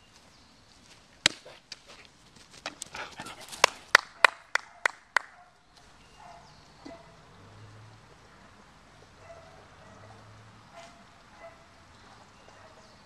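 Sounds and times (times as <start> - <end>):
hand claps: 3.5 - 5.4.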